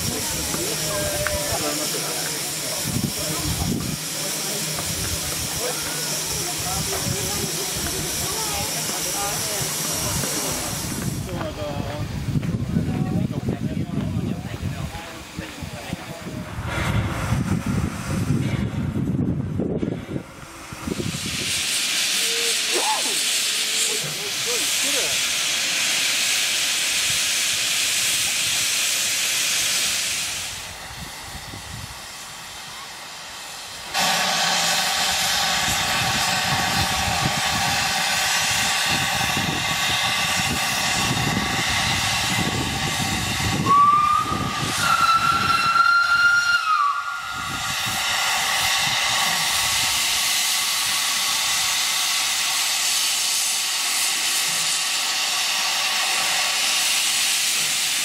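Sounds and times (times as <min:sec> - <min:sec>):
steam locomotive hissing: 0:00.0 - 0:58.0
steam whistle blast: 0:43.5 - 0:48.0.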